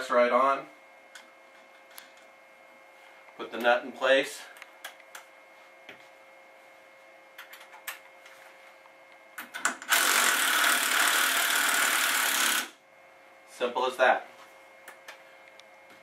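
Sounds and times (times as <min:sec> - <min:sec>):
cordless power tool running: 0:09.9 - 0:12.8.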